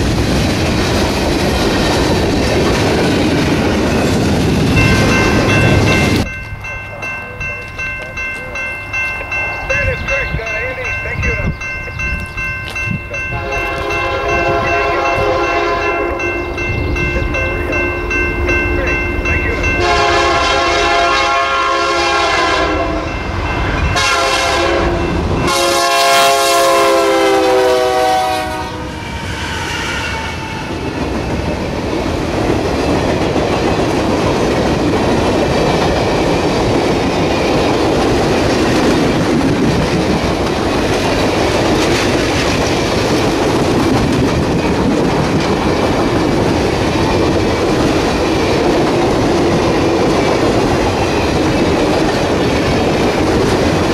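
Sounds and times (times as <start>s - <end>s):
train wheels on rails: 0.0s - 53.9s
locomotive air horn blasts: 13.3s - 16.2s, 19.8s - 23.1s, 24.0s - 30.6s
clickety-clack over rail joints: 30.8s - 53.9s.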